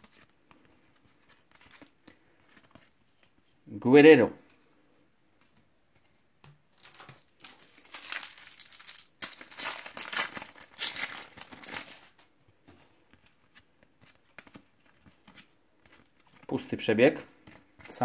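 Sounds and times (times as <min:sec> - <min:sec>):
foil packet tearing and crinkling: 0:06.8 - 0:12.2.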